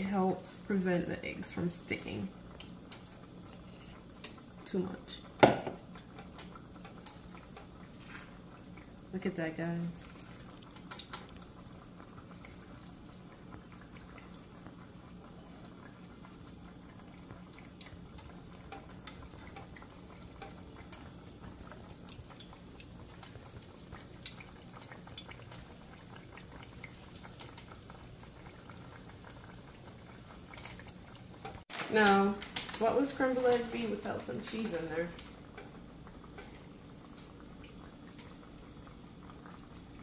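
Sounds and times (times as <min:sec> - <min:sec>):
food sizzling in a pan: 0:00.0 - 0:40.0.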